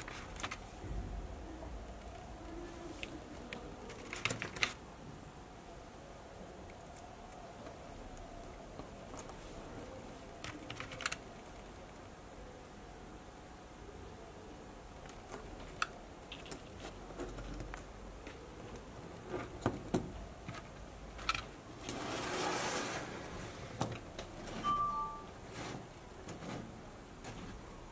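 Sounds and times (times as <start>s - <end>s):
wooden toy train clicks and knocks: 15.0s - 21.6s
rustle: 21.8s - 27.6s.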